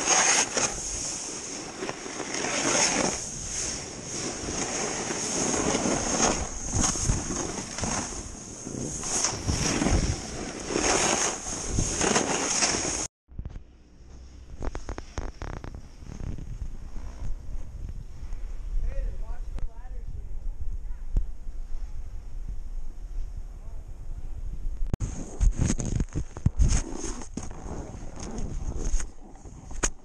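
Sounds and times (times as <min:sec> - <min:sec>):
snowboard scraping over snow: 0:00.0 - 0:13.1, 0:25.0 - 0:29.8
wind rushing over microphone: 0:03.2 - 0:12.1, 0:15.6 - 0:29.8.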